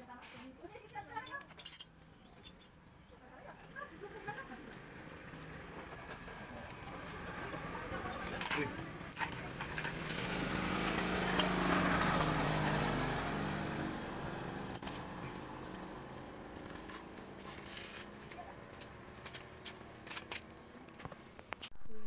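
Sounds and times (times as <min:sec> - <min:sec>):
metal parts clicking: 0:01.1 - 0:02.7
small engine passing by: 0:03.8 - 0:20.8.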